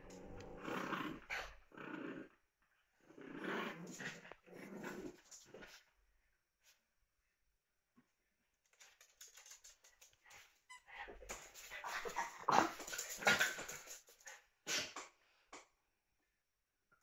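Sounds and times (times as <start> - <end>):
dogs making play noises: 8.8 - 15.0.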